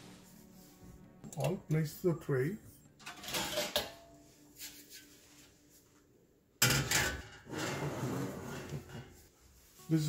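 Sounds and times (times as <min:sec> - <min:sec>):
pan clattering onto rack: 0:03.0 - 0:04.1, 0:06.6 - 0:07.8
metal scraping and clinking: 0:03.0 - 0:04.2.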